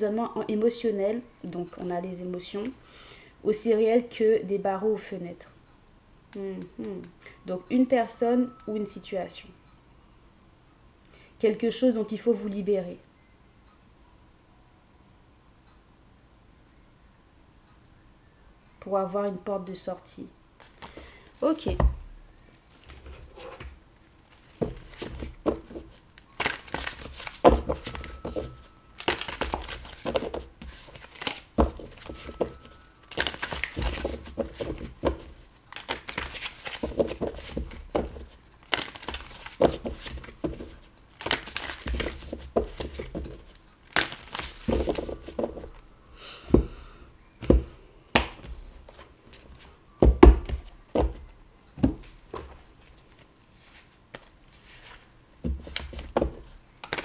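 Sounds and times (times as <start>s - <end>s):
cards rustling and sliding: 24.3s - 45.8s, 52.8s - 56.2s.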